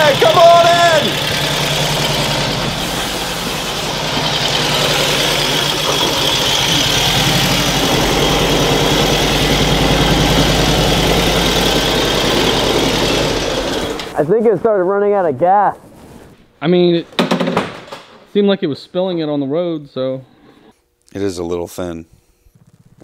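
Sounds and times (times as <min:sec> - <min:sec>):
motorcycle engine running: 0:00.0 - 0:14.1.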